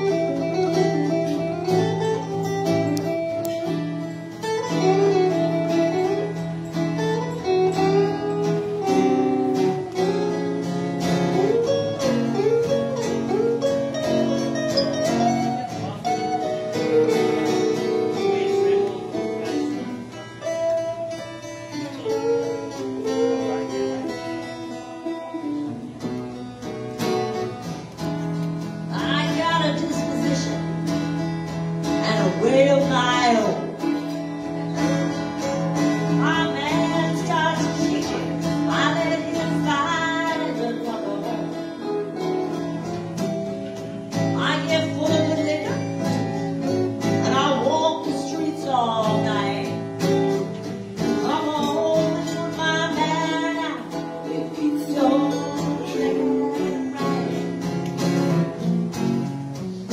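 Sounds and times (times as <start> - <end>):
acoustic guitars playing blues: 0.0 - 59.9
woman singing: 28.9 - 31.0, 31.9 - 35.0, 35.8 - 43.0, 44.1 - 57.9.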